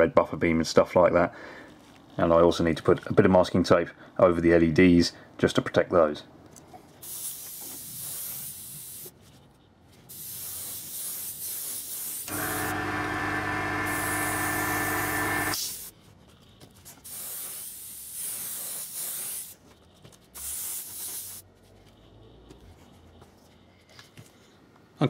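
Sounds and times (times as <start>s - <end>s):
airbrush spraying hiss: 7.0s - 9.1s, 10.1s - 12.8s, 13.8s - 15.9s, 17.0s - 19.6s, 20.4s - 21.4s
loud steady hum: 12.3s - 15.6s.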